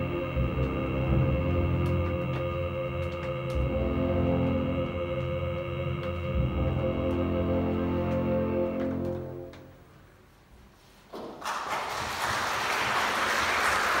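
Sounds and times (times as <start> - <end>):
orchestra holding low chord: 0.0 - 9.9
audience applause: 11.4 - 14.0.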